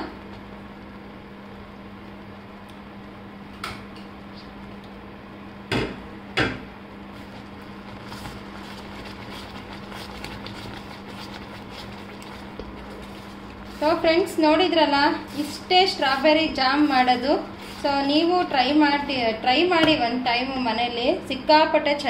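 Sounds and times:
steady low hum: 0:00.0 - 0:22.0
spatula stirring jam in a pan: 0:07.1 - 0:19.3.

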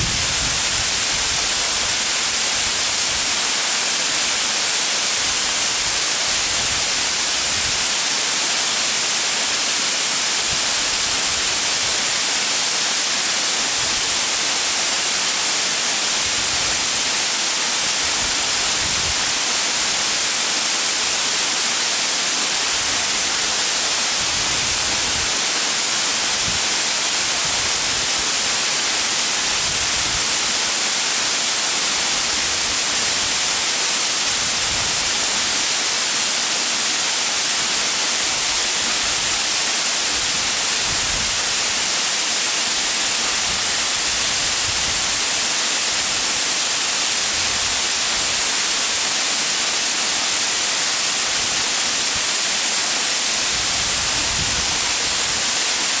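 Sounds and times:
waterfall rushing into pool: 0:00.0 - 0:56.0.

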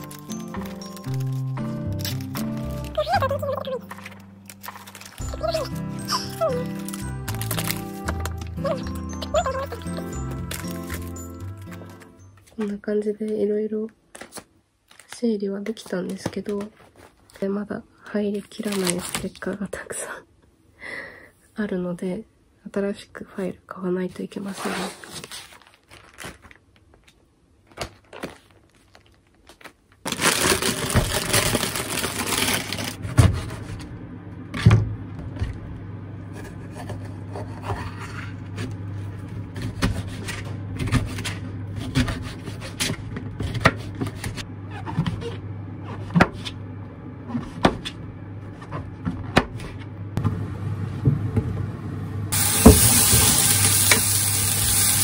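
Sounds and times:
paper handling: 0:00.0 - 0:12.8, 0:18.4 - 0:19.5, 0:24.6 - 0:33.9
low hum: 0:30.4 - 0:53.0
mushrooms sizzling in frying pan: 0:52.4 - 0:55.0.

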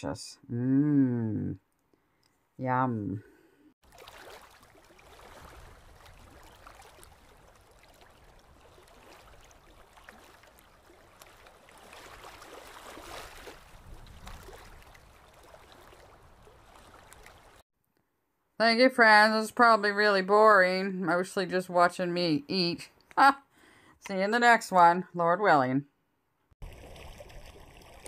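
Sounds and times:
small waves washing on sand: 0:03.8 - 0:17.6.

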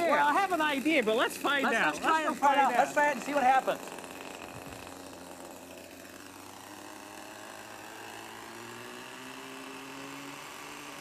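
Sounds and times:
model helicopter engine and rotor: 0:00.0 - 0:11.0.

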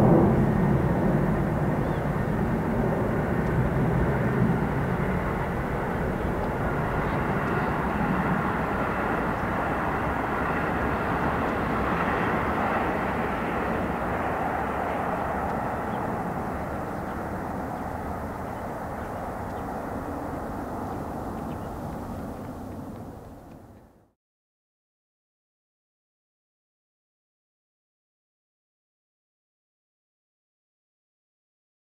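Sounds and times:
jet airliner rumble: 0:00.0 - 0:24.1.

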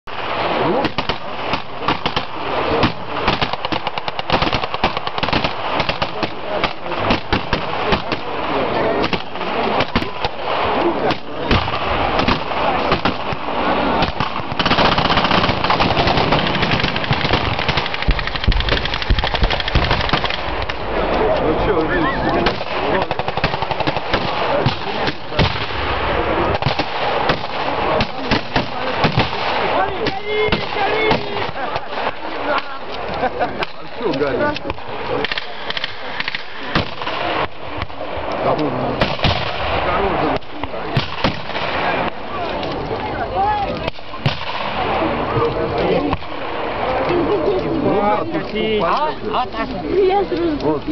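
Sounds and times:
single gunshots: 0:00.5 - 0:20.8, 0:22.4 - 0:32.2, 0:34.6 - 0:38.2, 0:38.9 - 0:42.2, 0:43.8 - 0:45.1
machine-gun burst: 0:00.7 - 0:20.7, 0:22.4 - 0:25.8
machine-gun bursts: 0:14.0 - 0:20.6.

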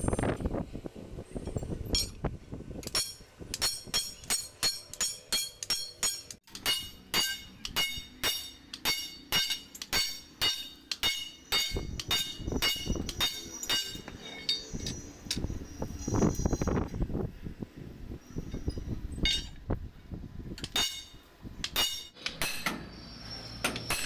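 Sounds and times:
sledgehammer striking steel: 0:02.9 - 0:14.7, 0:20.6 - 0:23.0, 0:23.6 - 0:24.0.

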